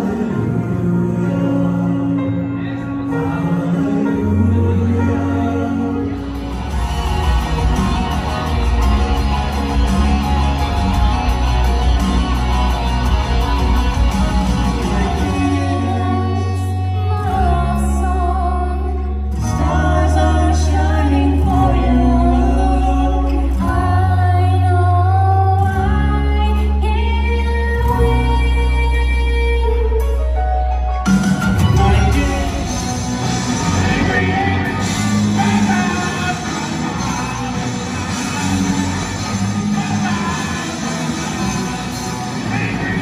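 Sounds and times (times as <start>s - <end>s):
person singing: 0.0s - 30.8s, 31.4s - 43.0s
band playing guitar and bass: 0.0s - 43.0s
deep held bass notes: 0.0s - 43.0s.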